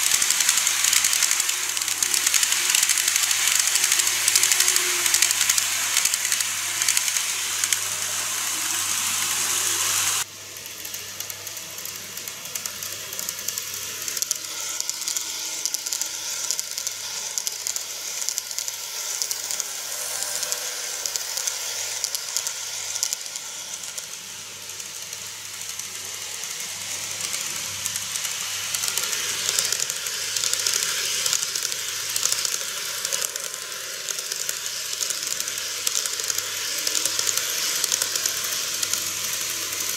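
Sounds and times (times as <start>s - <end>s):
model trains rolling on track: 0.0s - 39.9s.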